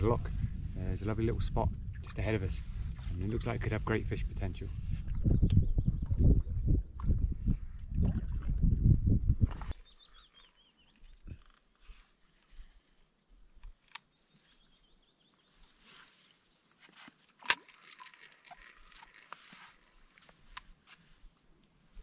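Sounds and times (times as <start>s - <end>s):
faint scattered clicks: 13.6s - 14.2s
reel bail snapping over: 16.9s - 19.9s
fishing reel winding: 17.5s - 19.4s.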